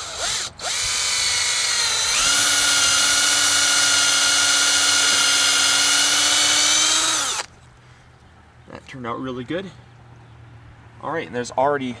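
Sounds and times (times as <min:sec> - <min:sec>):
cordless drill boring into wood: 0:00.0 - 0:07.5.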